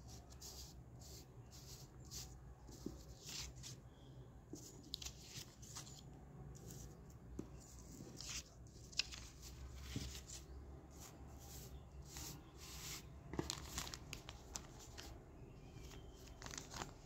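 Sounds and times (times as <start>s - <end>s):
paper banknotes rustling: 4.6s - 6.0s, 7.8s - 15.1s, 15.8s - 17.0s.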